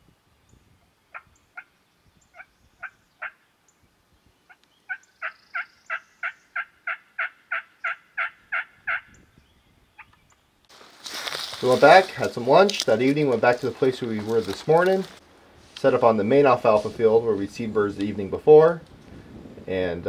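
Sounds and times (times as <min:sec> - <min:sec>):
turkey yelps: 0:04.9 - 0:09.1.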